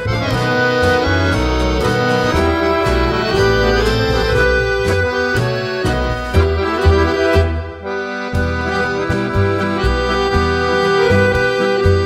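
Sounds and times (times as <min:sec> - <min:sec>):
accordions playing tango: 0:00.0 - 0:12.0
bass notes: 0:00.0 - 0:12.0.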